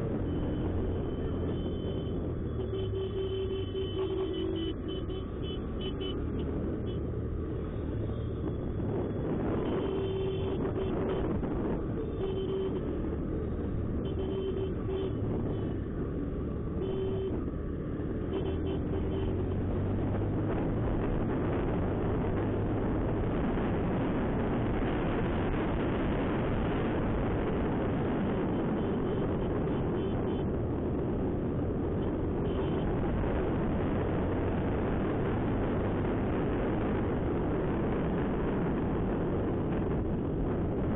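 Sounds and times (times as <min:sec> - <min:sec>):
vehicle horn beeps: 0:01.1 - 0:06.2, 0:09.6 - 0:11.3, 0:12.0 - 0:13.0, 0:14.0 - 0:15.7, 0:16.8 - 0:17.4, 0:18.3 - 0:19.4.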